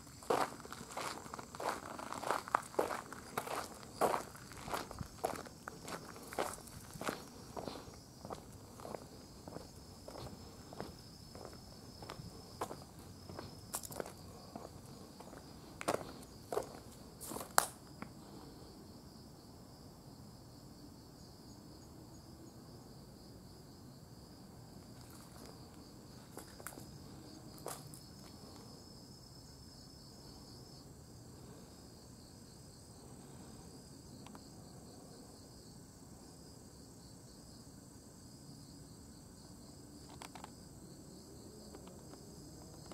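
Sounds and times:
insects chirping: 0.0s - 42.9s.

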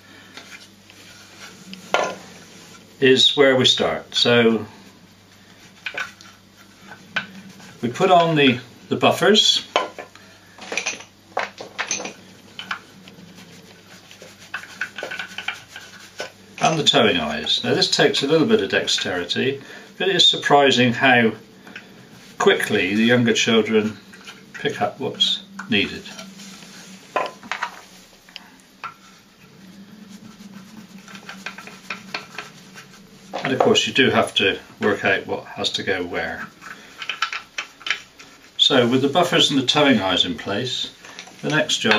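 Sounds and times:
wooden toy parts clicking: 36.6s - 38.3s.

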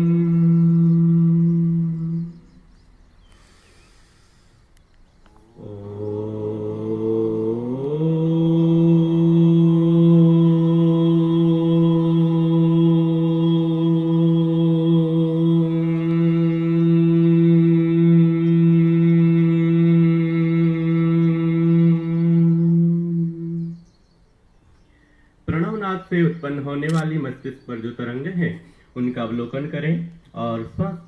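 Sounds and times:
person chanting om: 0.0s - 2.9s, 5.3s - 24.0s.

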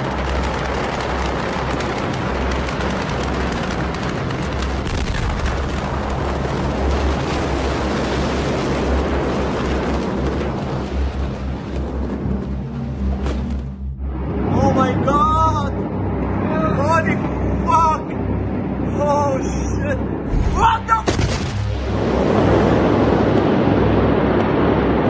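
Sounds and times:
sharp cracks and pops: 0.0s - 12.2s
fire roaring rumble: 0.0s - 25.0s.

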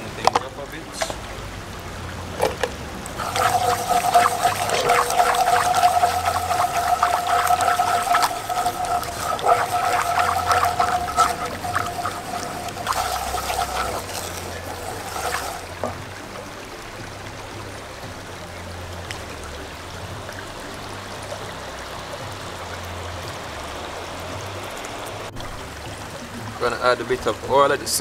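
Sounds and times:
thin steady whine: 3.1s - 16.0s
sauce simmering and bubbling: 3.1s - 16.2s.

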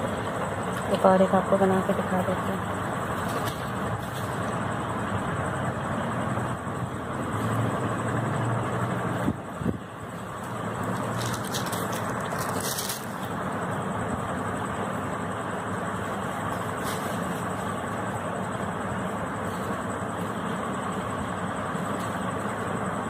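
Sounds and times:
road traffic rumble: 0.0s - 23.0s
short rustle: 10.4s - 13.3s, 16.6s - 17.7s.

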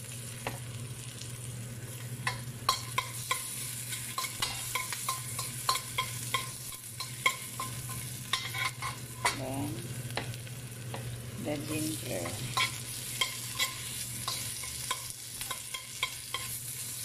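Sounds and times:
garlic and onion sizzling in oil: 0.0s - 17.0s
metal spoon clinking against wok: 4.1s - 9.4s, 12.2s - 16.6s.

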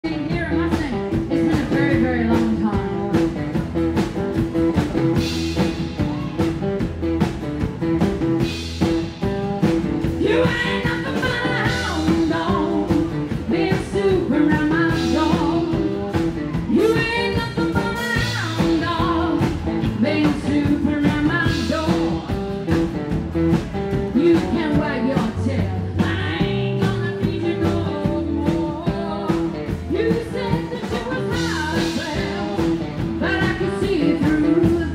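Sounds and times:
woman singing: 0.0s - 3.6s, 10.1s - 22.9s, 24.0s - 34.9s
double bass: 0.0s - 34.9s
drums: 0.0s - 34.9s
electric guitar: 0.0s - 34.9s.

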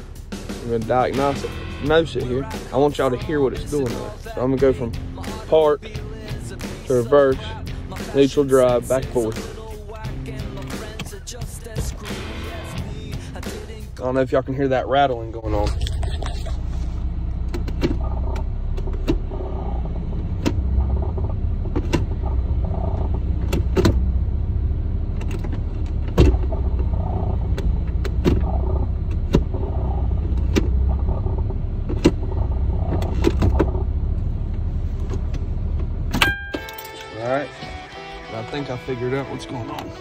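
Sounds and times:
car engine idling: 0.0s - 40.0s.

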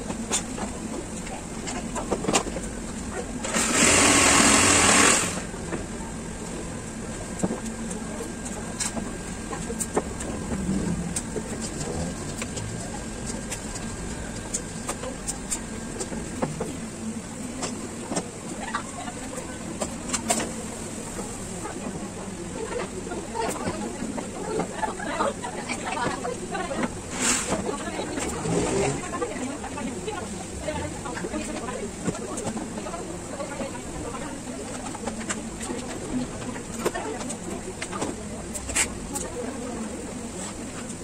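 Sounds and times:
handheld power tool running: 3.5s - 5.4s.

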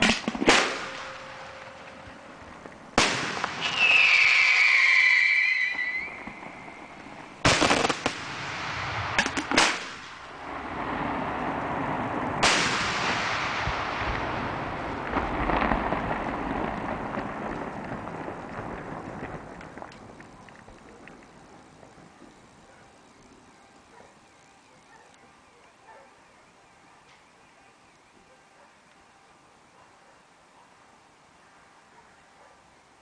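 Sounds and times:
firework bangs with rolling echo: 0.0s - 5.0s, 5.7s - 20.2s
firework whistle falling in pitch: 3.6s - 6.8s.

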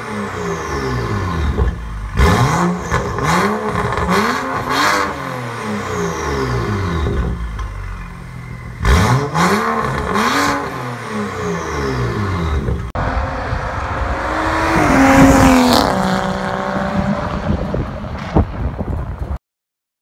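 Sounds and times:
car engine revving: 0.0s - 18.3s
car accelerating past: 13.0s - 18.3s.

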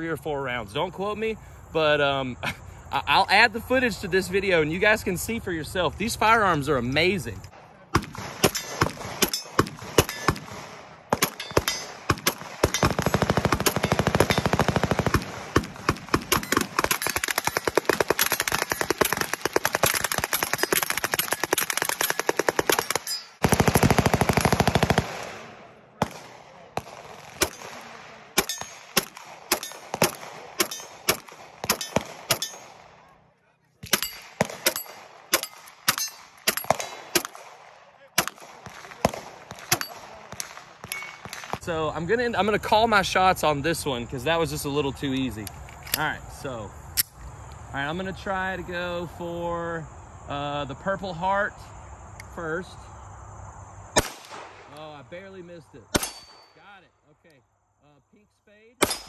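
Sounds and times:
gunshots: 7.6s - 33.0s, 33.8s - 41.6s, 54.0s - 54.8s, 55.9s - 56.7s, 58.8s - 59.0s
rapid automatic gunfire: 12.1s - 26.2s.

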